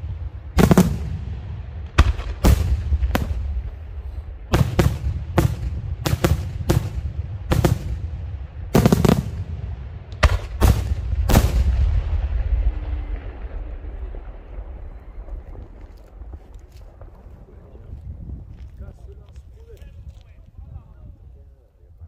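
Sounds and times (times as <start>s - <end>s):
fireworks bursting: 0.0s - 17.5s
low rumble: 0.0s - 21.4s.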